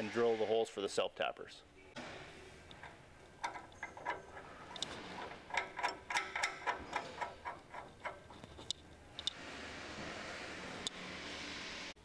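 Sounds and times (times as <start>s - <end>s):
nut spinning on bolt clicking: 2.7s - 9.4s.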